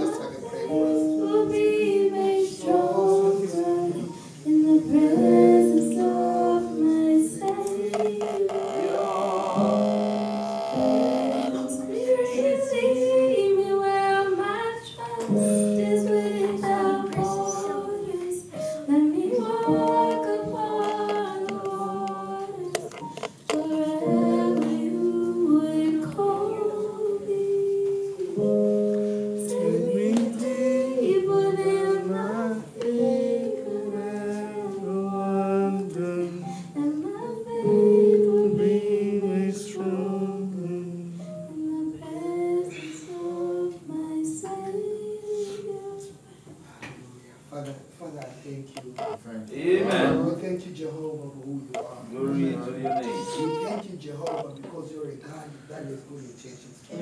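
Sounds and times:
woman singing into a microphone: 0.0 - 9.0, 9.6 - 46.6
electronic keyboard chords: 7.8 - 12.4.

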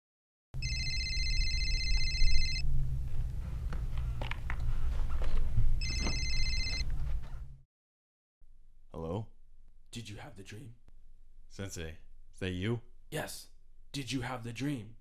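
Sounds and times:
telephone ringing: 0.6 - 2.7, 5.8 - 6.9
steady low hum: 0.6 - 7.6.

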